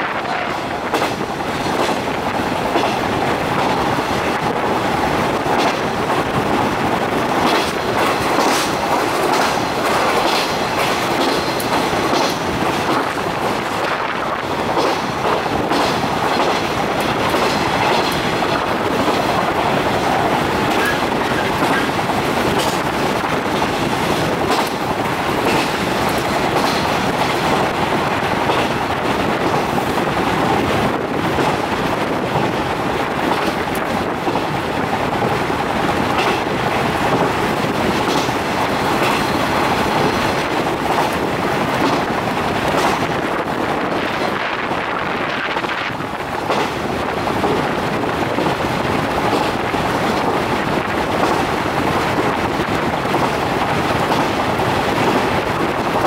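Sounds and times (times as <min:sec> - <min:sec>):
clickety-clack of rail joints: 0:00.0 - 0:56.0
wheels rumbling on rail: 0:00.0 - 0:56.0.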